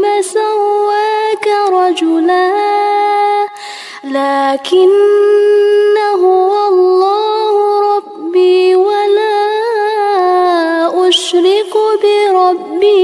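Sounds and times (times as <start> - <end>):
woman chanting recitation: 0.0 - 13.0
woman breathing: 3.5 - 4.1.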